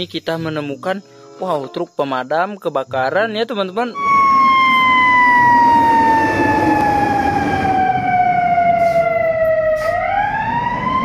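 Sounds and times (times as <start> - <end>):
engine and road noise: 4.0 - 11.0
fire engine siren wailing: 4.0 - 11.0.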